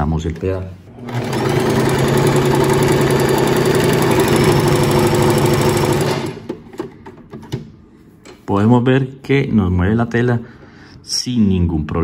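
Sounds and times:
sewing machine stitching: 1.0 - 6.5.

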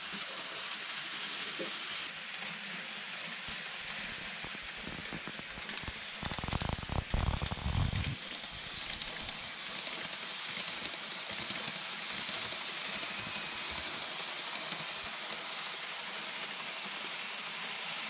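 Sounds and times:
model train wheels on rails: 0.0 - 18.0
low rumble: 7.0 - 8.2.

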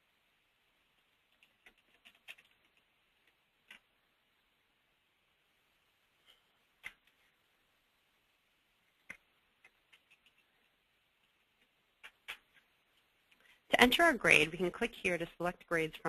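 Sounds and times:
keyboard typing: 1.2 - 3.9, 6.8 - 7.3, 9.0 - 12.7.

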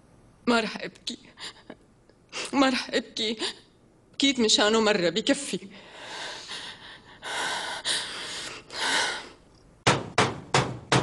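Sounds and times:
woman breathing tearfully: 5.8 - 9.5.

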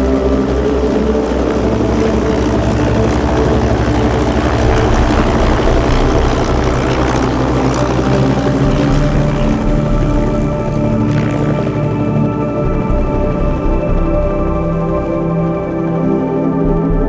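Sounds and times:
background music: 0.0 - 17.0
steady mechanical rumble: 0.0 - 17.0.

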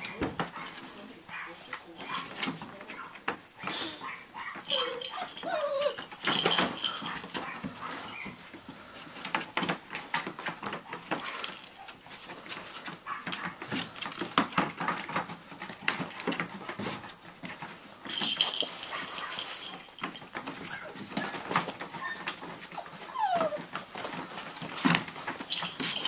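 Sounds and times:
puppies scuffling among toys: 0.0 - 26.0
puppies whimpering: 3.7 - 6.2, 20.6 - 24.2.

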